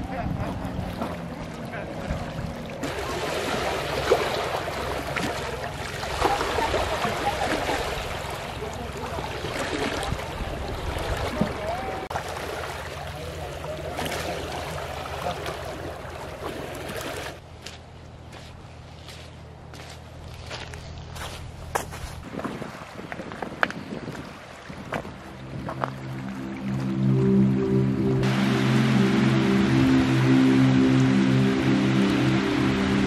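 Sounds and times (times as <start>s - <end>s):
waves washing against rocks: 0.5s - 17.4s.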